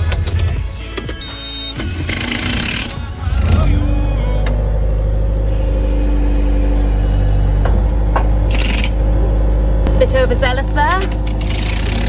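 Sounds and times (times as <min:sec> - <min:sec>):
diesel engine droning: 0:00.0 - 0:12.0.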